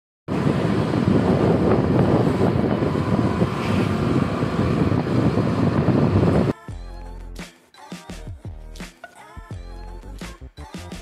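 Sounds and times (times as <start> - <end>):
moving vehicle road and engine noise: 0.3 - 6.6
wind buffeting microphone: 0.3 - 6.6.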